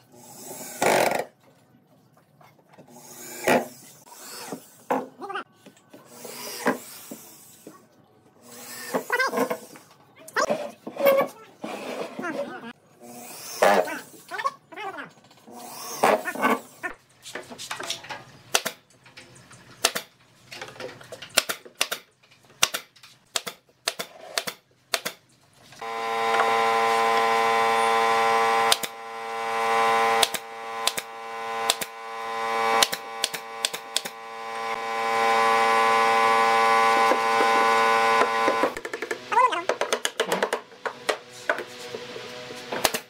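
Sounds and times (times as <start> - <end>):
nail gun firing into wood: 18.5 - 18.8, 19.8 - 20.1, 21.4 - 25.2, 28.6 - 28.9, 30.0 - 32.0, 32.6 - 34.2, 42.8 - 43.0
loud steady hum: 25.8 - 38.8.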